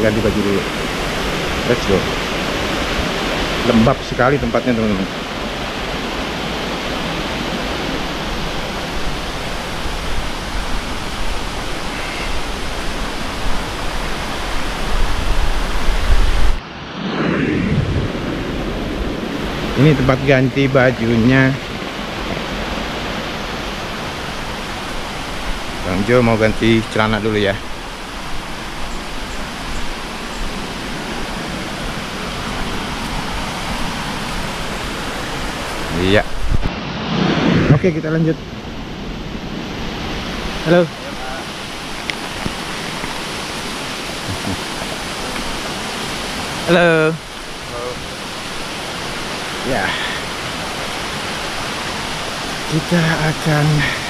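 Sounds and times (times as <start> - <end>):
stream rushing over rocks: 0.0 - 16.6, 18.7 - 36.8, 37.8 - 54.0
low rumble: 16.2 - 19.9, 36.5 - 39.4.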